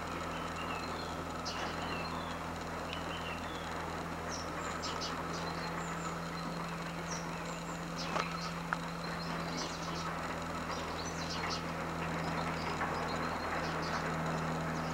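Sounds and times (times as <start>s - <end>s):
low hum: 0.0s - 14.9s
small birds chirping: 0.0s - 14.9s.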